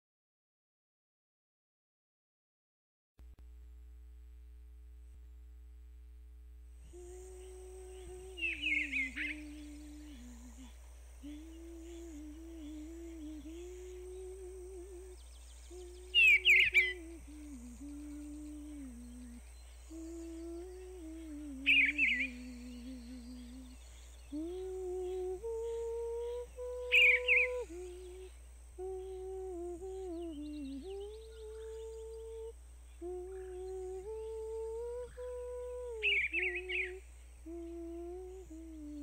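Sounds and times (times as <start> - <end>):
person humming a slow tune: 6.8 - 39.0
bird chirps: 8.0 - 10.2, 15.1 - 17.2, 17.9 - 26.0, 26.8 - 28.2, 29.2 - 34.4.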